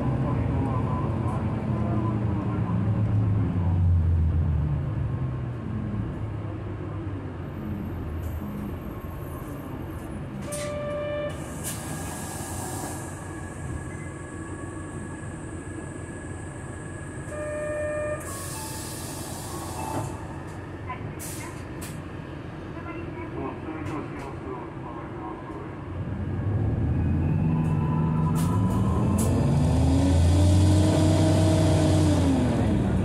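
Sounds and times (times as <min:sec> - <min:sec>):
bus engine rumble: 0:00.0 - 0:33.0
short beeps: 0:17.3 - 0:19.0.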